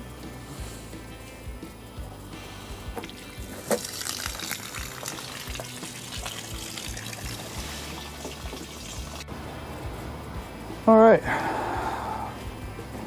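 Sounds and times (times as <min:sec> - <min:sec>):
water splashing and trickling: 0:02.8 - 0:09.3.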